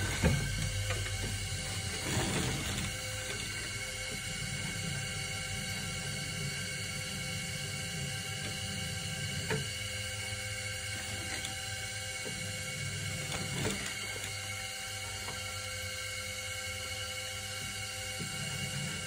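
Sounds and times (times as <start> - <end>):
potter's wheel motor humming: 0.0 - 19.0.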